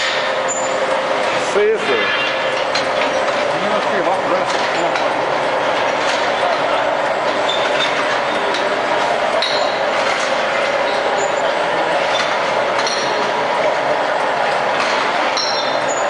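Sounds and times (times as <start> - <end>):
conveyor and filling machine din: 0.0 - 16.0
glass bottles clinking: 9.4 - 10.0, 12.1 - 13.4, 15.3 - 16.0.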